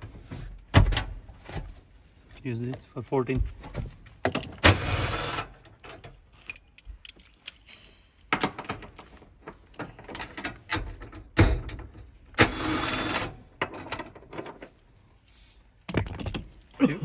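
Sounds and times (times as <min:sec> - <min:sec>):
tools clinking on metal: 0:06.4 - 0:07.9.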